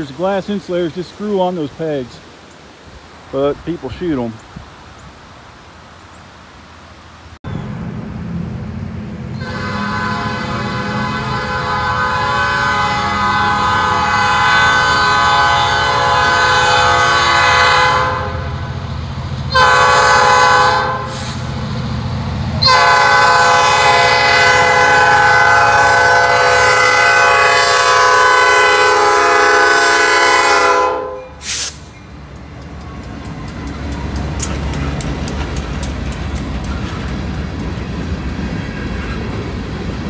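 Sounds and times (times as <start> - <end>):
locomotive diesel engines rumbling: 7.0 - 40.0
locomotive horn blasts: 9.4 - 18.6, 19.5 - 21.5, 22.6 - 31.7.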